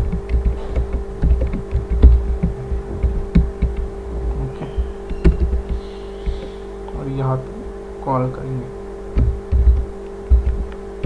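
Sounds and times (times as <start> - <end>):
keyboard typing: 0.0 - 6.6, 9.2 - 10.8
steady hum: 0.0 - 11.0.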